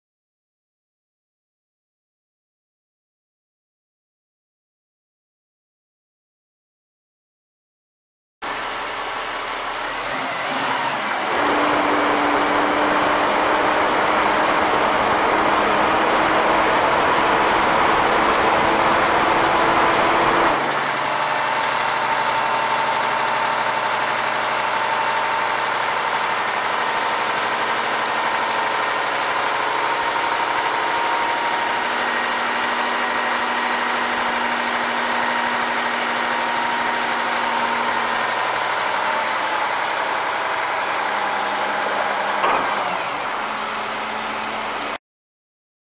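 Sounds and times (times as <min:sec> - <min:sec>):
diesel truck engine running: 0:08.4 - 0:45.0.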